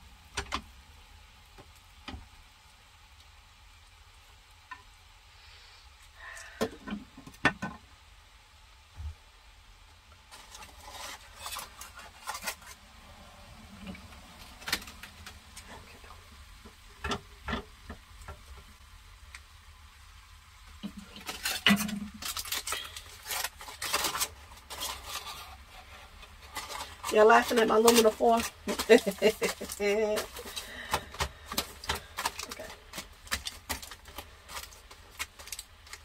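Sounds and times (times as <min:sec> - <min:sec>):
aluminium foil crinkling: 0:10.2 - 0:19.5, 0:20.5 - 0:36.0
utensil clicking and scraping pan: 0:10.4 - 0:12.8, 0:20.8 - 0:36.0.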